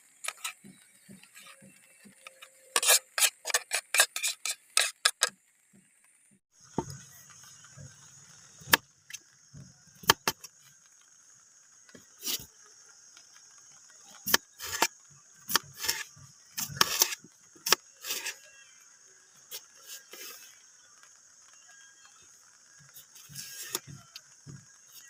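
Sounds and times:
knife cutting on wooden board: 2.3 - 5.3, 14.3 - 14.9, 15.5 - 16.0, 16.6 - 18.4.

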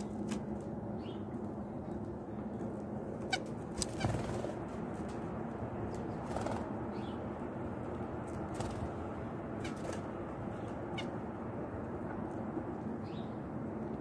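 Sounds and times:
steady low hum: 0.0 - 14.0
wings fluttering: 3.3 - 5.2, 6.0 - 6.8, 8.3 - 9.0, 9.6 - 10.2.

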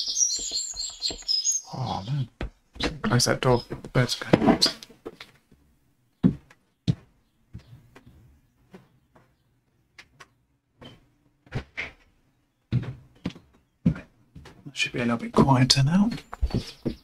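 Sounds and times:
faint bird chirps: 0.0 - 3.7
knocks and thumps of movement: 2.2 - 5.4, 6.2 - 17.0.

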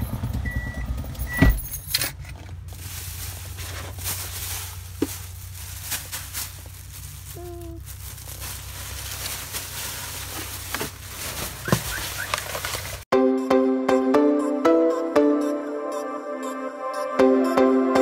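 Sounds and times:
car interior rumble: 0.0 - 13.0
clicks and rustles: 1.8 - 13.0
music: 13.1 - 18.0.

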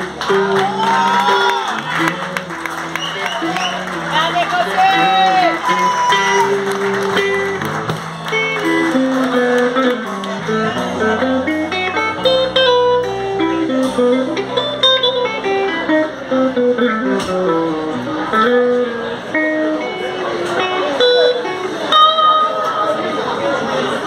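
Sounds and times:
bass guitar: 0.0 - 24.0
electric guitar lead line: 0.0 - 24.0
drums: 5.0 - 18.6.

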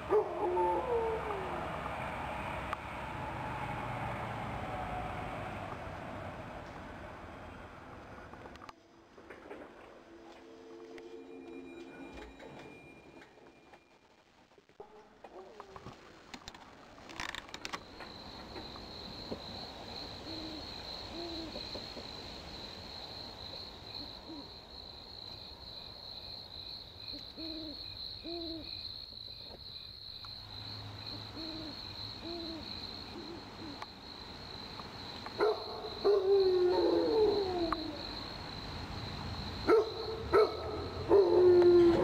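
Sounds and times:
crickets chirping: 15.9 - 42.0
owl hooting: 20.2 - 21.8, 27.1 - 28.8, 31.1 - 33.8.

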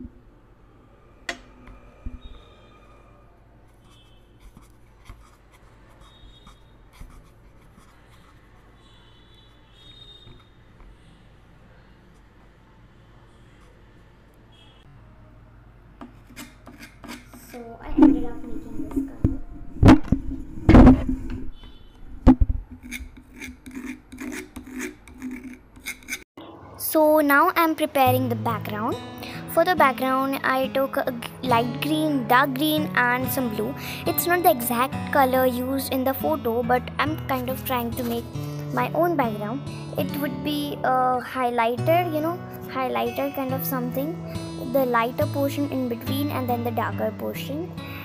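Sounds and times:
paintbrush scratching plastic: 3.6 - 10.6, 16.0 - 17.7, 22.2 - 26.3.

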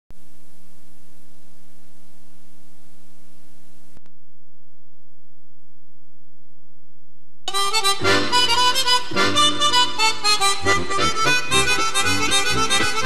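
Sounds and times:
electrical mains hum: 0.1 - 9.4.

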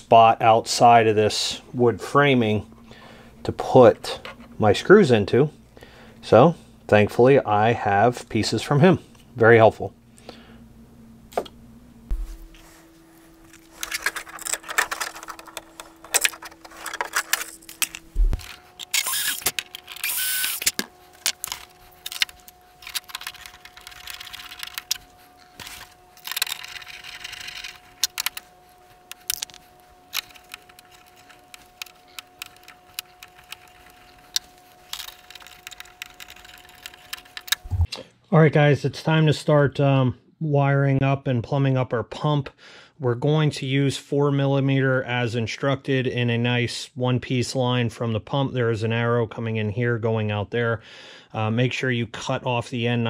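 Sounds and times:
faint steady hum: 0.0 - 41.3.

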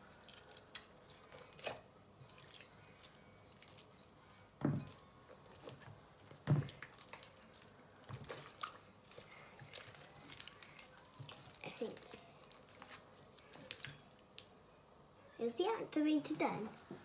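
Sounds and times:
slime squelching by hand: 0.0 - 14.5.

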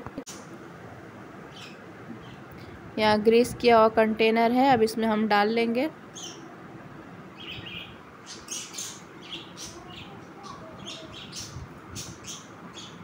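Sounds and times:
small birds chirping: 1.5 - 2.8, 6.1 - 6.5, 7.3 - 13.0.

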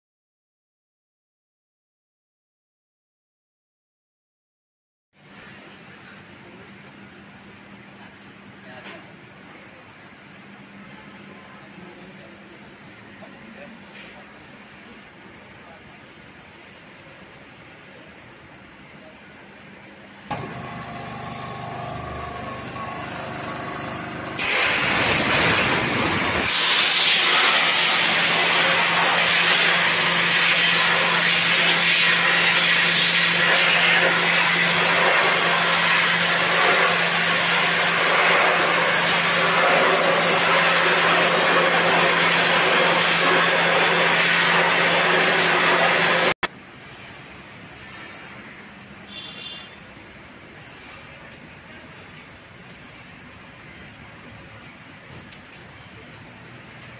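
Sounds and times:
machine hum: 20.2 - 46.4
water jet hissing on steel: 20.3 - 46.4.

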